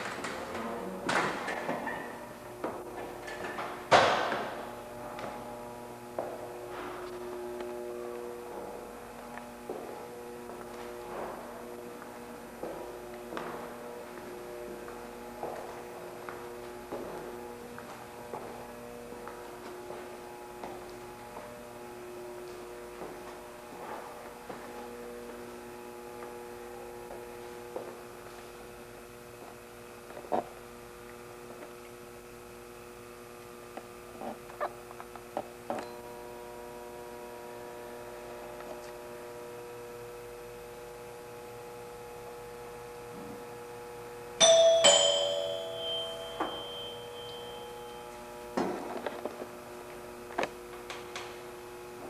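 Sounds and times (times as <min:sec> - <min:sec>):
steady hum of held tones: 0:00.0 - 0:52.0
two-note doorbell chime: 0:44.4 - 0:48.2.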